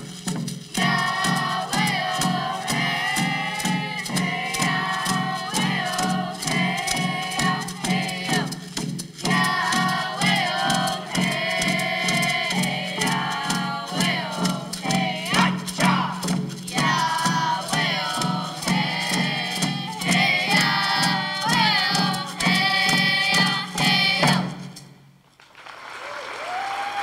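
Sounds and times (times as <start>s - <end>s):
hand drums beating: 0.0s - 25.0s
children singing together: 0.8s - 8.6s, 9.2s - 24.6s
people applauding: 25.4s - 27.0s.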